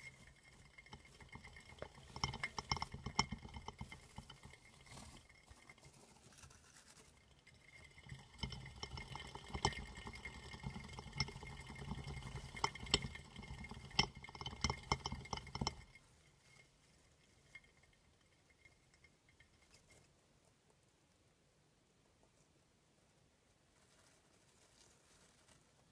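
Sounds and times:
exercise wheel rattling rumble: 0:00.0 - 0:06.5, 0:07.1 - 0:19.8.

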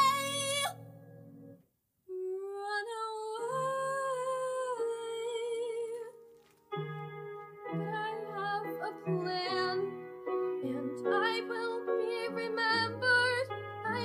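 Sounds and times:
girl singing: 0:00.0 - 0:00.8, 0:02.1 - 0:06.2, 0:07.8 - 0:14.0
piano chords: 0:00.0 - 0:06.0, 0:06.7 - 0:14.0.

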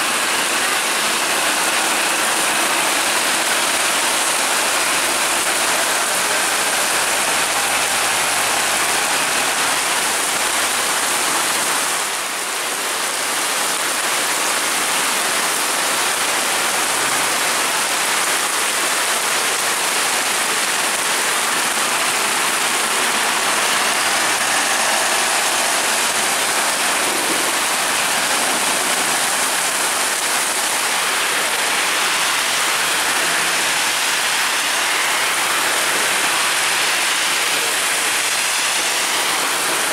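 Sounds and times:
buses passing: 0:00.0 - 0:11.6, 0:20.2 - 0:39.9
heavy rain on road: 0:00.0 - 0:39.9.

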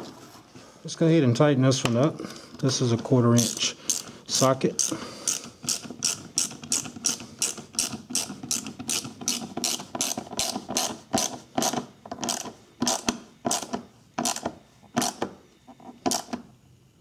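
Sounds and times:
hand ratchet clicking: 0:03.4 - 0:15.3.

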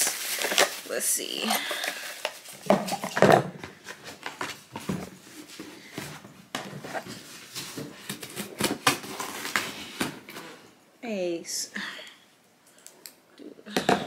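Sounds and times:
cardboard packaging rustling: 0:00.0 - 0:10.7.

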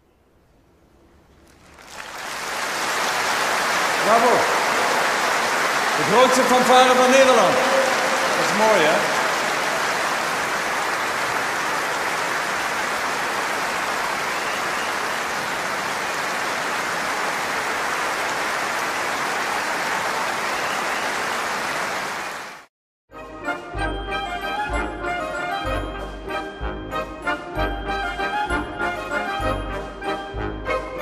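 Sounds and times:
audience applauding: 0:01.4 - 0:22.7.

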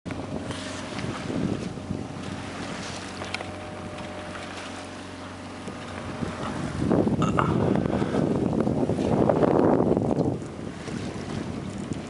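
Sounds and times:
steady low hum: 0:00.1 - 0:09.6
water washing past hull: 0:00.1 - 0:12.0
wind on microphone: 0:00.1 - 0:12.0.

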